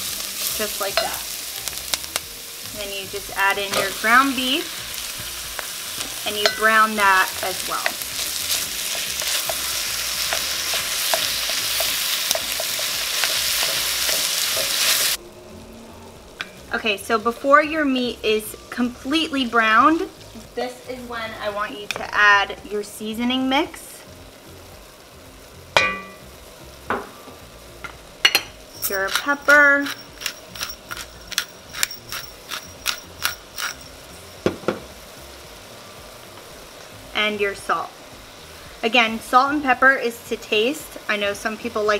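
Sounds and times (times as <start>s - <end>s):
meat sizzling in oil: 0.0s - 15.2s, 16.3s - 41.9s
pepper mill clicking: 28.8s - 33.9s.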